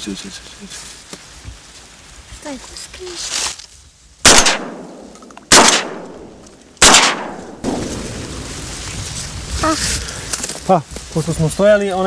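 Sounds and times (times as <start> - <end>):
shotgun shots with echo: 4.2 - 8.4.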